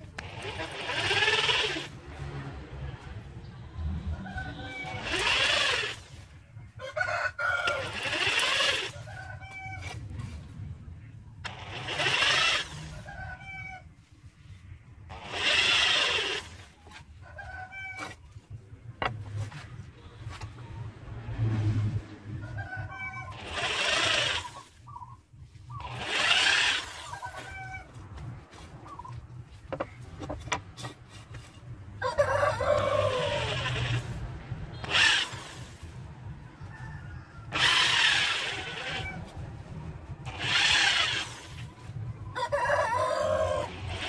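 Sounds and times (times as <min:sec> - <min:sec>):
electric drill boring into wood: 0:00.1 - 0:02.0, 0:04.8 - 0:06.3, 0:07.6 - 0:09.0, 0:11.4 - 0:13.1, 0:15.1 - 0:16.7, 0:23.3 - 0:24.8, 0:25.8 - 0:27.5, 0:32.8 - 0:34.2, 0:34.8 - 0:35.8, 0:37.4 - 0:39.2, 0:40.3 - 0:41.7, 0:43.8 - 0:44.0.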